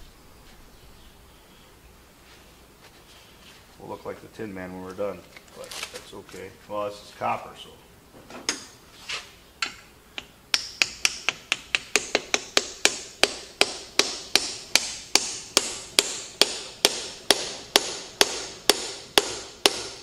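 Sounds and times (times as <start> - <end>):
hammer tapping on metal: 9.6 - 20.0.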